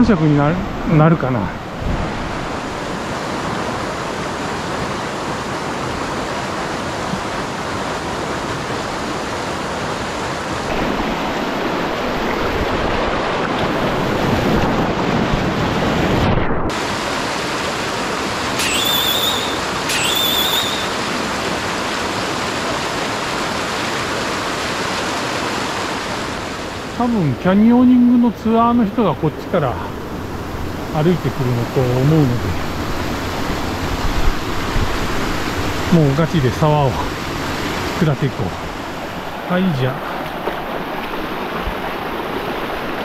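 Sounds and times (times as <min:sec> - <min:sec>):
stream water rushing over rock: 0:00.0 - 0:15.4, 0:16.7 - 0:43.0
high wavering tone: 0:18.6 - 0:21.0.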